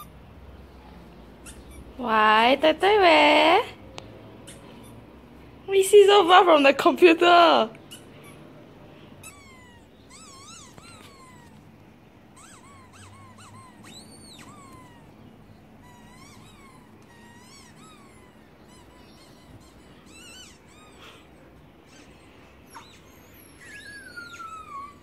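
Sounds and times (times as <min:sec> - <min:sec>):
faint short squeaks from speaker: 0:01.4 - 0:01.9, 0:09.2 - 0:11.6, 0:12.4 - 0:15.0.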